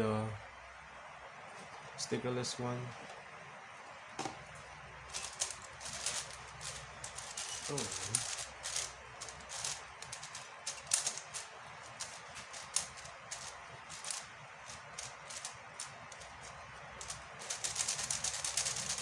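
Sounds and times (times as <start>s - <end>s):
plastic puzzle cube clicking: 5.2s - 19.0s.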